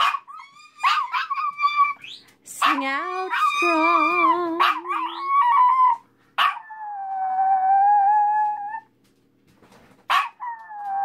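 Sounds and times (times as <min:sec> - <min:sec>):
small dog howling: 0:03.0 - 0:08.9, 0:10.2 - 0:11.0.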